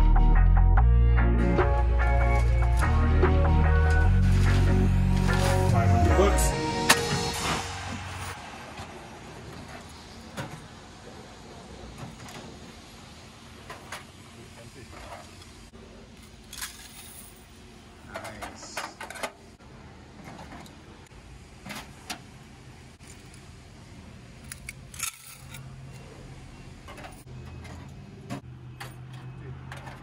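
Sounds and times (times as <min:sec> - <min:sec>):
keys jangling: 0:16.5 - 0:17.5, 0:24.5 - 0:25.7
metal clicks and clatter: 0:24.4 - 0:25.7.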